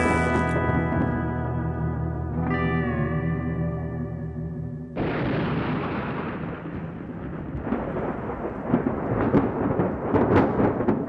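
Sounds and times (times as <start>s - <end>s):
sharp thunder cracks: 5.0s - 11.0s
thunder rumbling: 5.0s - 11.0s.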